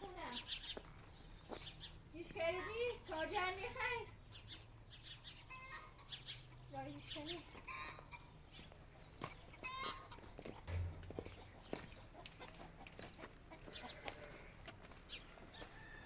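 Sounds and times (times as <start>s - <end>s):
chickens clucking: 4.5s - 15.7s
dull low thump: 10.7s - 11.9s.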